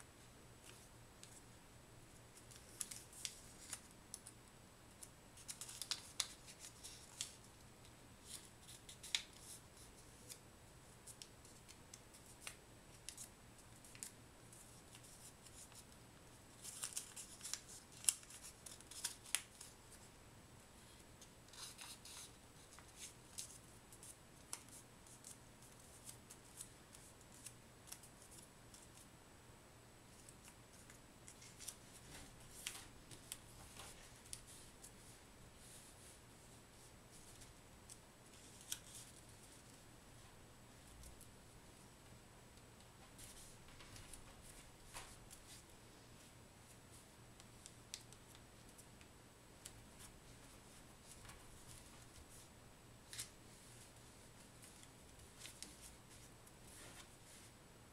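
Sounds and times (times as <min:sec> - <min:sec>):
paper being folded: 0:02.3 - 0:04.3, 0:05.0 - 0:07.5, 0:08.2 - 0:10.4, 0:16.6 - 0:20.1, 0:21.5 - 0:29.0, 0:37.1 - 0:39.8.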